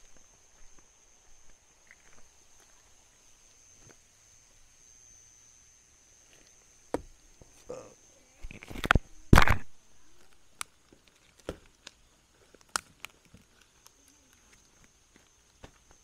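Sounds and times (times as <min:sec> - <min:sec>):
twig snaps: 0:08.4 - 0:14.6.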